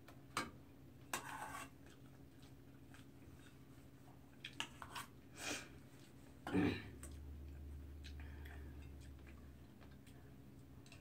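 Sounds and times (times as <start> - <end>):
spoon scraping a metal bowl: 1.1 - 1.8.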